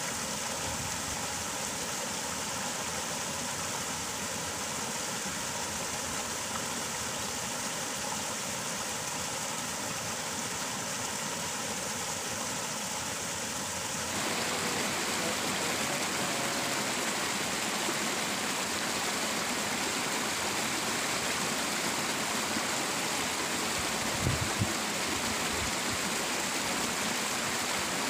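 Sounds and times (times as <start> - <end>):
water rushing over weir: 0.0 - 28.0.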